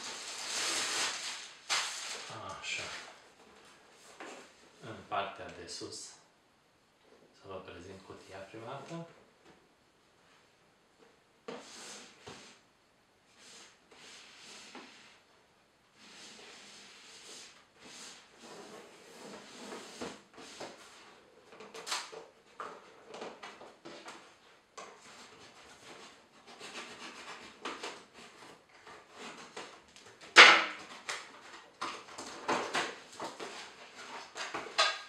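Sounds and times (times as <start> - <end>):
cardboard box scraping and rustling: 16.0 - 21.8.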